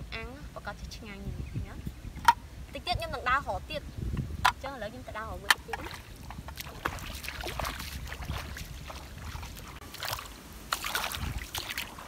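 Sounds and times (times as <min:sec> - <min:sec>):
feet splashing in muddy water: 0:05.6 - 0:12.0.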